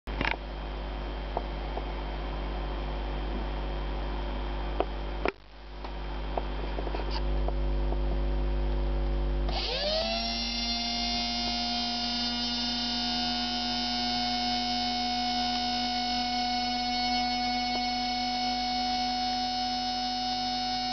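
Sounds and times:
lathe motor whine: 0:09.5 - 0:20.9.

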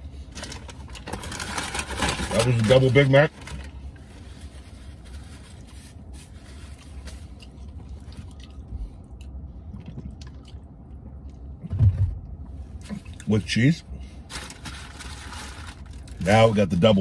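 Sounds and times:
person chewing: 0:06.7 - 0:11.4.

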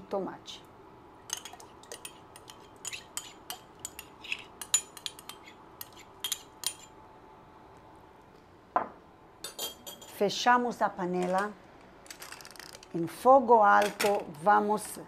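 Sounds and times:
metal spoon clinking on ceramic: 0:01.3 - 0:06.9.

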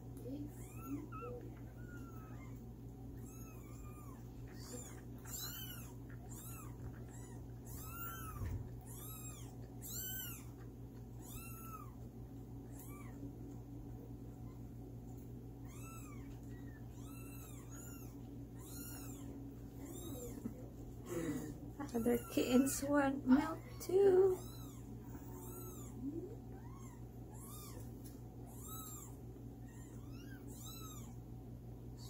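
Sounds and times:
kittens mewing: 0:00.3 - 0:13.6, 0:15.5 - 0:22.8, 0:23.4 - 0:31.2.

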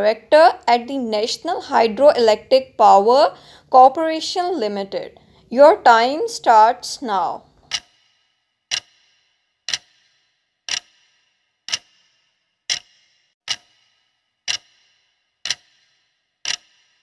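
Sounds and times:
clock ticking with ring: 0:07.4 - 0:17.0.

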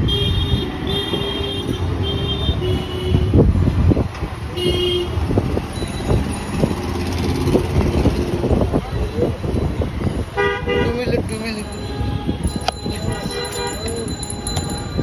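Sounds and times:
traffic rumble: 0:00.0 - 0:15.0
vehicle horn honking: 0:10.4 - 0:11.0, 0:11.8 - 0:14.1.

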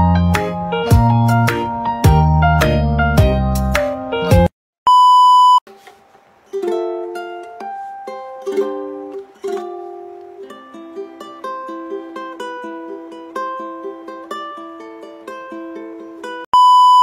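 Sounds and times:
light plucked-string music: 0:00.0 - 0:04.5, 0:05.7 - 0:16.4
loud steady beep: 0:04.9 - 0:05.6, 0:16.6 - 0:17.0.

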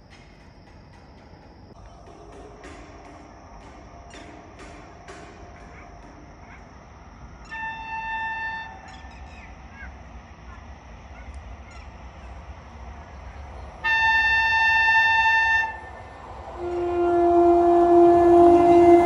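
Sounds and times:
electric locomotive horn blasts: 0:07.4 - 0:09.1, 0:13.8 - 0:19.0.

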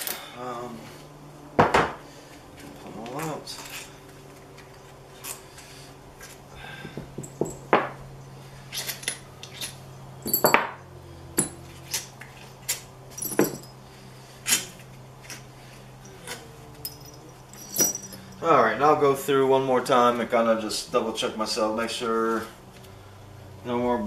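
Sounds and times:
faint low hum: 0:00.0 - 0:24.0
metallic clinks of tools and bolts: 0:08.7 - 0:10.8, 0:12.7 - 0:13.8, 0:16.0 - 0:18.4.

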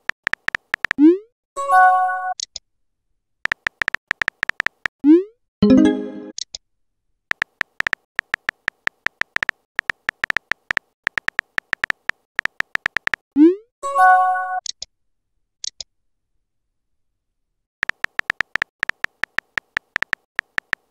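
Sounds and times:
keyboard typing clicks: 0:00.0 - 0:01.0, 0:03.4 - 0:04.9, 0:07.3 - 0:13.2, 0:17.8 - 0:20.9.

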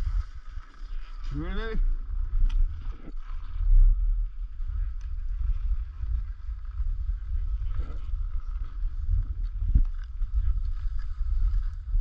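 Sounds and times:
skis sliding on snow: 0:00.0 - 0:01.8
wind buffeting microphone: 0:00.0 - 0:12.0.

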